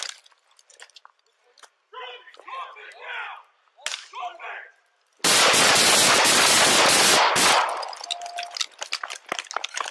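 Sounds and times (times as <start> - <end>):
rapid gunshots: 5.2 - 7.9.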